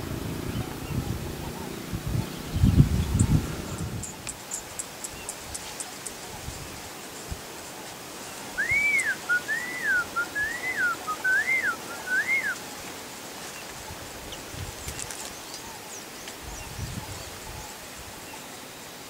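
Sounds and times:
bird whistling clear notes: 8.6 - 12.6.

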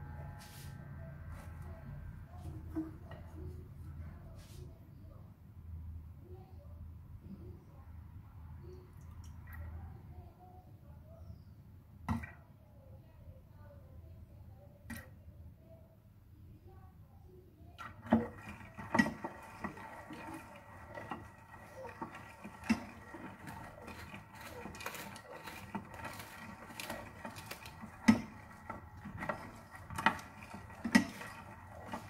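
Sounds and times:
faint steady hum: 0.0 - 26.2
wooden spoon stirring beans: 17.8 - 32.0.

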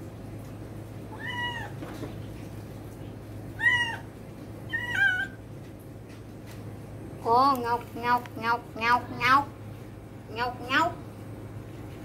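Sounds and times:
kitten meowing: 1.1 - 1.8, 3.6 - 4.1, 4.7 - 5.4.

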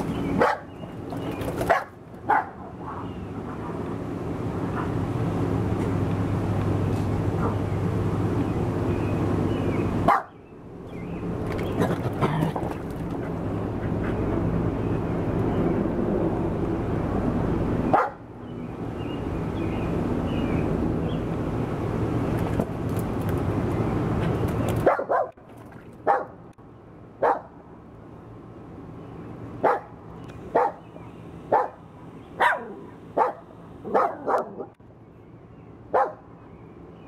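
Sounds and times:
small dog barking: 0.4 - 0.7, 1.7 - 2.6, 10.1 - 10.3, 24.8 - 25.4, 27.2 - 27.5, 29.6 - 29.9, 30.5 - 30.8, 31.5 - 31.8, 32.4 - 34.7, 35.9 - 36.2.

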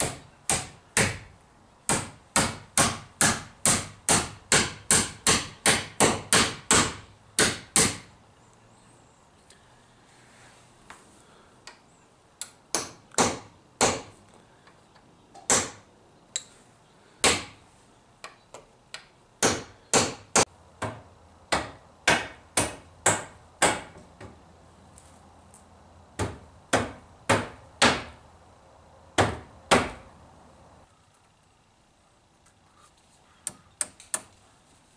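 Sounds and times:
hammer knocking wood: 1.9 - 8.1, 20.8 - 24.4, 26.2 - 28.2, 29.2 - 30.0.

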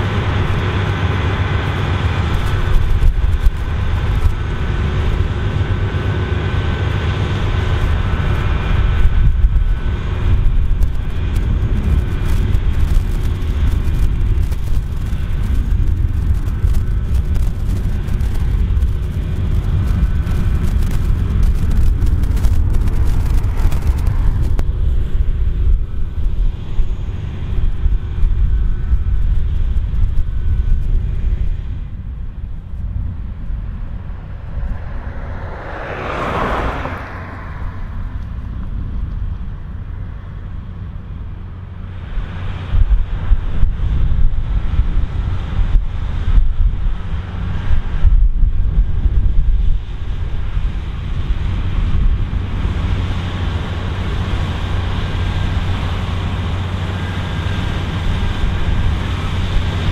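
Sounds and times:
combine harvester rumbling: 0.0 - 59.9
rising and falling whoosh: 33.2 - 38.5.

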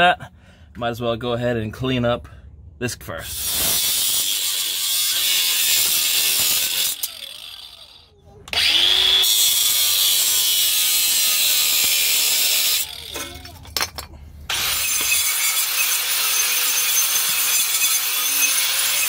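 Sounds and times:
angle grinder on metal pipe: 3.2 - 13.5, 14.5 - 19.0.

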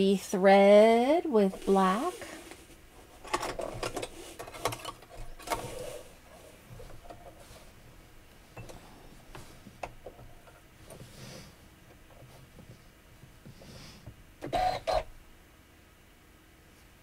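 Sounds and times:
handling noises: 1.4 - 14.9.

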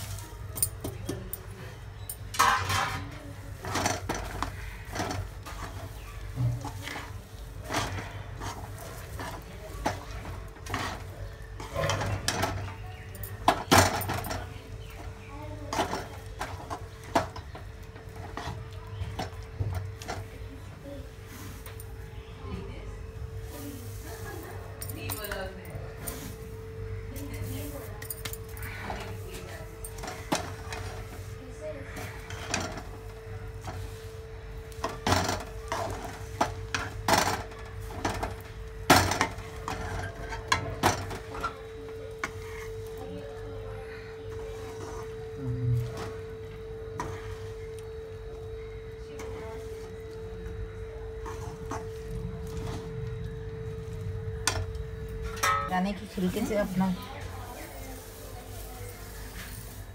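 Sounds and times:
steady low hum: 0.0 - 59.9
metal spoon scraping a pan: 2.4 - 6.0, 6.6 - 12.7
spatula scraping a pan: 2.4 - 12.7, 28.7 - 41.6, 42.2 - 42.9, 44.0 - 47.7, 51.1 - 53.0.

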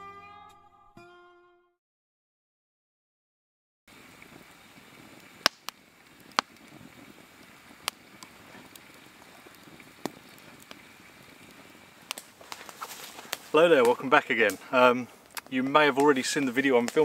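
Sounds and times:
wood fire crackling: 3.9 - 17.0.

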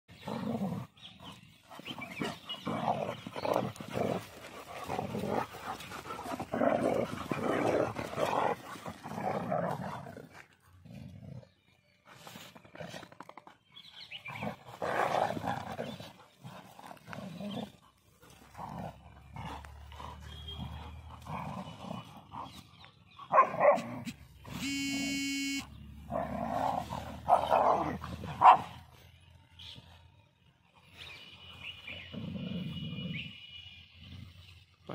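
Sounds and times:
dogs growling and barking: 0.1 - 13.4, 14.1 - 24.4, 25.8 - 28.9, 32.0 - 33.2.

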